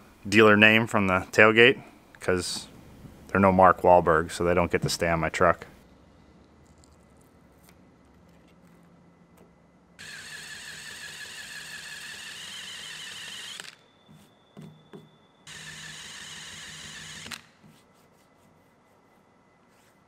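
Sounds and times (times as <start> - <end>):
electric power tool whining: 10.0 - 13.8, 15.5 - 17.5.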